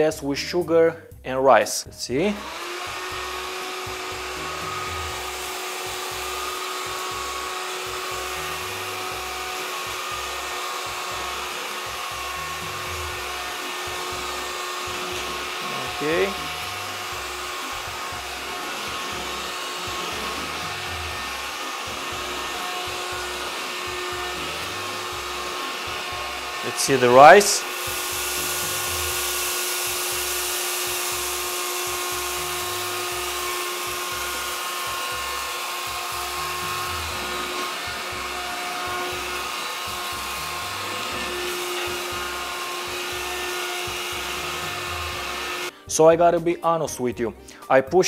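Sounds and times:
stick vacuum cleaner running: 0:02.2 - 0:45.8.

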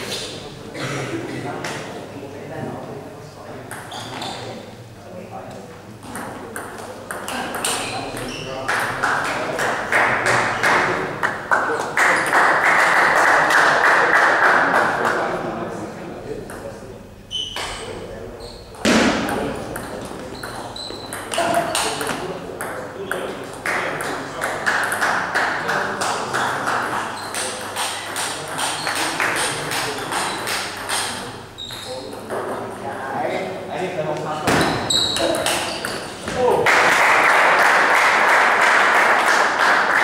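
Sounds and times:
small crowd clapping: 0:08.6 - 0:15.3, 0:23.6 - 0:31.2, 0:36.6 - 0:40.0.

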